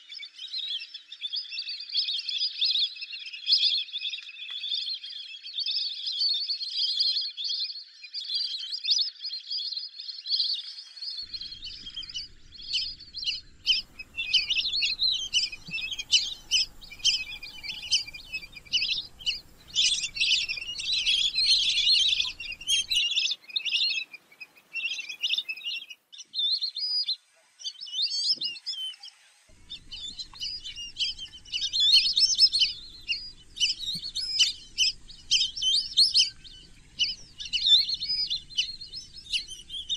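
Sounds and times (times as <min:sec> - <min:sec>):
whistling ducks calling: 0:11.3 - 0:26.0, 0:29.6 - 0:39.9.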